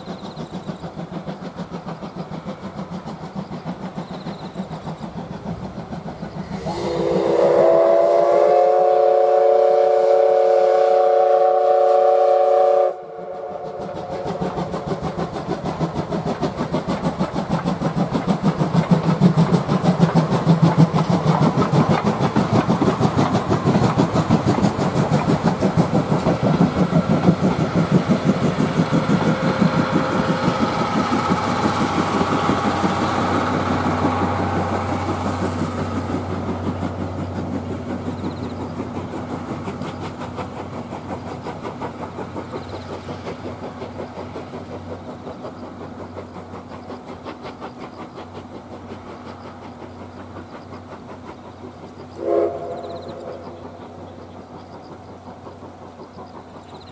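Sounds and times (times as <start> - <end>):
locomotive exhaust beats: 0.0 - 56.9
train coaches clattering on rails: 0.0 - 56.9
steam locomotive whistle: 6.5 - 14.4, 52.2 - 53.6.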